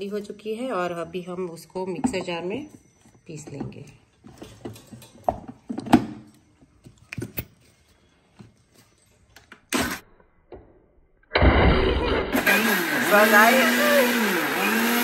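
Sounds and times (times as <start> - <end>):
mixer grinder running: 11.4 - 15.0.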